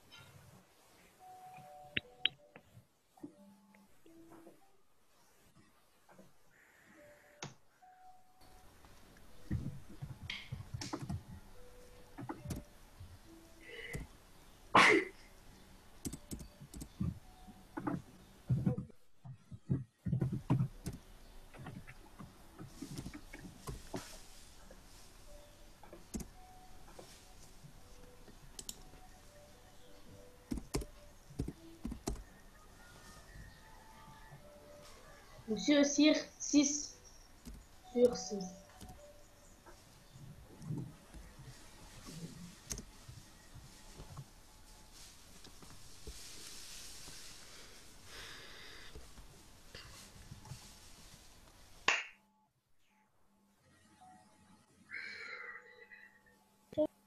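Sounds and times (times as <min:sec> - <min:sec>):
faint room noise: 0:00.0 - 0:57.0
computer keyboard clicks: 0:16.0 - 0:17.0, 0:30.5 - 0:32.2.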